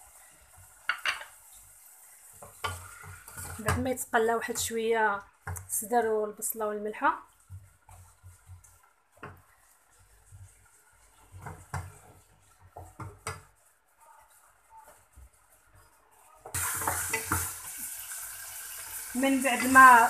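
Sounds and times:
food sizzling in oil: 0.0 - 20.0
wooden spoon scraping pan: 2.3 - 17.7.

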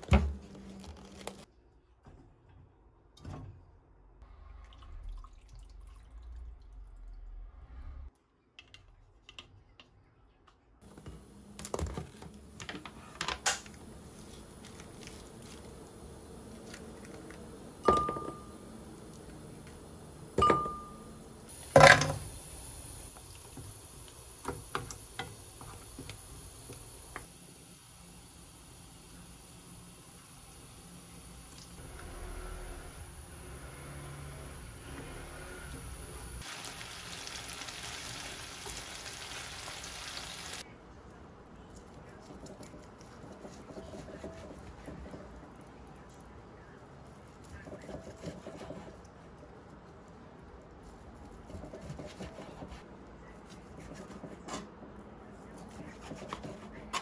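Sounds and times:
garlic sizzling in a frying pan: 36.1 - 40.6
wooden spoon stirring: 42.0 - 45.4.

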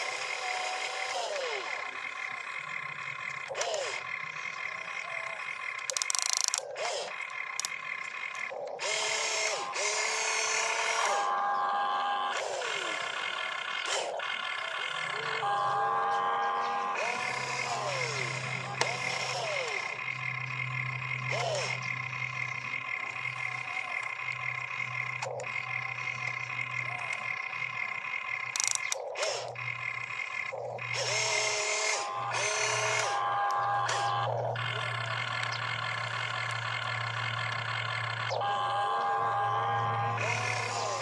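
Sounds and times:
toy excavator motor whine: 0.0 - 41.0.

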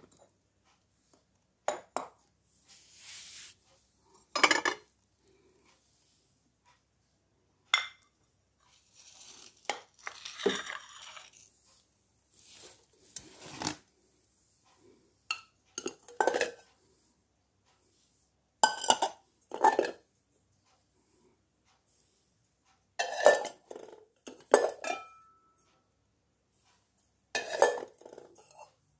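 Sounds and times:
dishes sliding and rubbing: 2.5 - 4.8, 8.7 - 13.9, 27.4 - 28.8
crockery clinking and clattering: 4.2 - 4.9, 7.7 - 8.2, 15.3 - 16.7, 18.6 - 20.1, 23.0 - 25.7, 27.4 - 28.8.

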